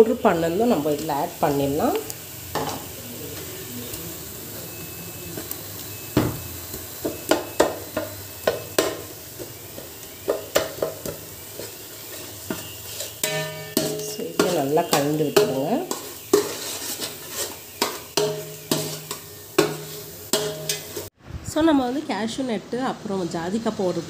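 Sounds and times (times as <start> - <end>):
paste sizzling in oil: 0.0 - 21.2
metal spatula knocking against pot: 12.5 - 16.6, 17.8 - 20.9.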